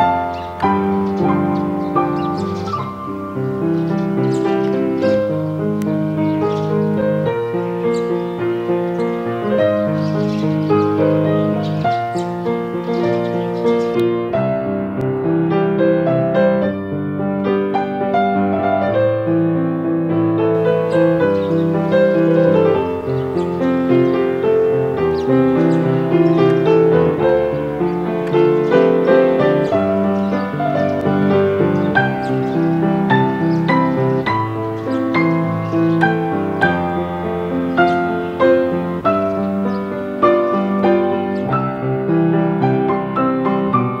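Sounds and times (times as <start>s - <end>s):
faint hiss: 0.0s - 16.1s
solo piano melody: 0.0s - 44.0s.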